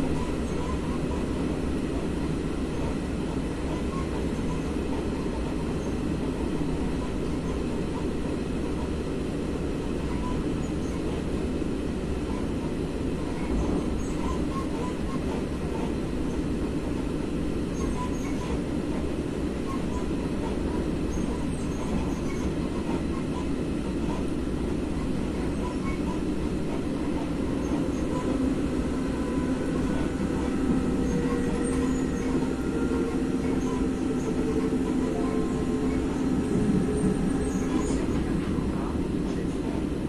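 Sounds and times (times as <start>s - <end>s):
train wheels rumbling on rails: 0.0s - 40.0s
steady whine: 25.1s - 40.0s.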